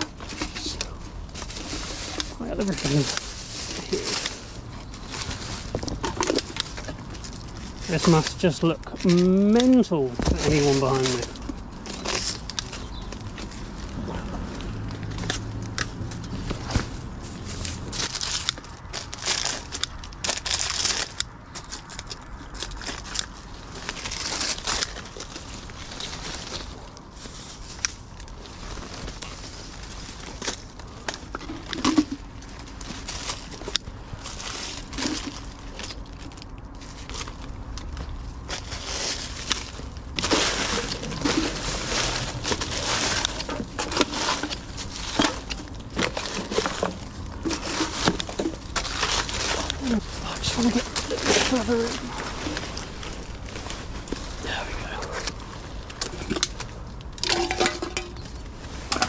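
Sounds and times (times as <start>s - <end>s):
twigs snapping: 0.0s - 27.0s
branches and leaves rustling: 0.0s - 59.0s
plastic litter crinkling: 0.0s - 59.0s.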